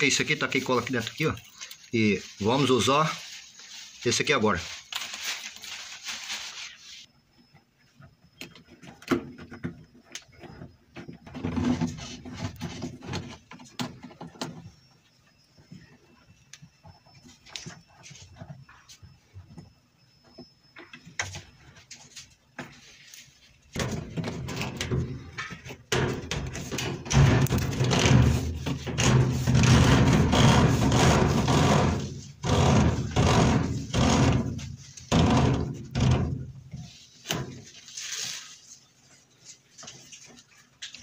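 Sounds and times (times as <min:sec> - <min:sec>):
plastic hose scraping and knocking: 0:08.4 - 0:14.8, 0:20.4 - 0:38.9.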